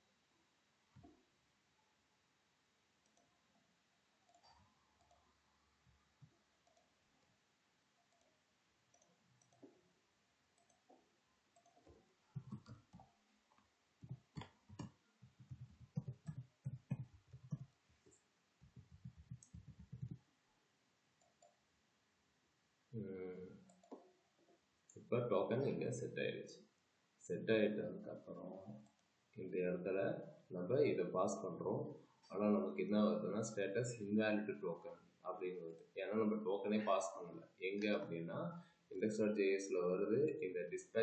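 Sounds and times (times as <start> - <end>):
keyboard typing: 8.9 - 9.8, 10.6 - 13.2, 14.0 - 20.2, 23.7 - 24.0
mouse clicks: 11.6 - 13.1, 18.6 - 20.2.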